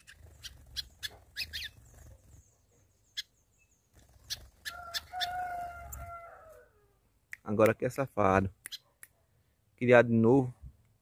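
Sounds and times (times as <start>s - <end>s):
songbirds chirping: 0.0s - 11.0s
long held bird call: 4.3s - 6.9s.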